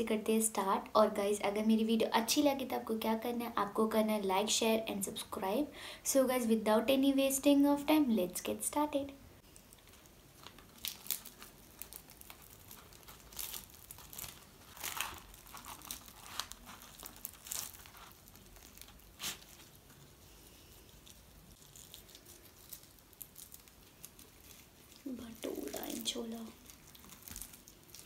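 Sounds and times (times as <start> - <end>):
fried bread tearing with crackles: 9.4 - 28.0.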